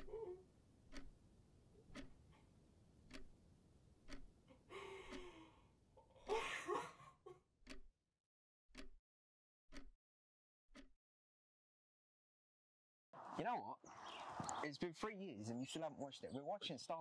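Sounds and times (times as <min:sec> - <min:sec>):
alarm clock ticking: 0:00.8 - 0:01.2, 0:01.8 - 0:02.3, 0:03.0 - 0:03.4, 0:04.0 - 0:04.4, 0:05.1 - 0:05.3, 0:07.6 - 0:07.9, 0:08.7 - 0:09.0, 0:09.7 - 0:10.0, 0:10.7 - 0:11.0
breathy rush of noise: 0:13.2 - 0:14.8.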